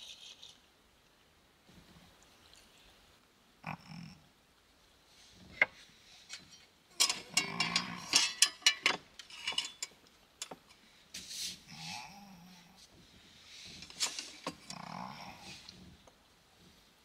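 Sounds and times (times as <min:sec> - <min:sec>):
metal gear clattering on shelf: 0:07.0 - 0:09.9.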